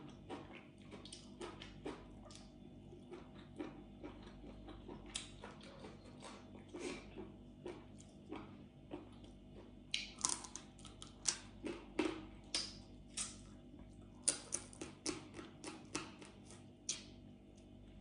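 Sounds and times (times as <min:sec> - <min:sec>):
chewing and wet mouth clicks: 0:00.3 - 0:13.4.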